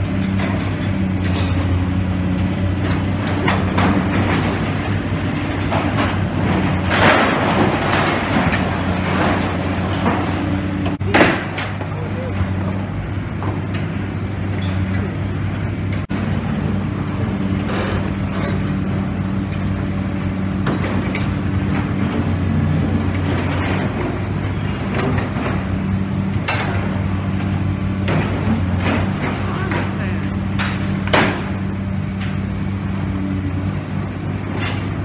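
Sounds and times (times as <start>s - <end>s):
excavator diesel engine running: 0.0s - 35.0s
rubble crunching and clattering: 2.6s - 13.6s.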